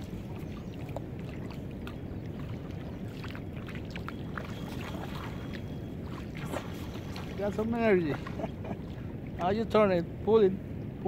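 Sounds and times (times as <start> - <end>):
light water splashes: 0.0 - 10.0
boat engine low rumble: 0.0 - 11.0.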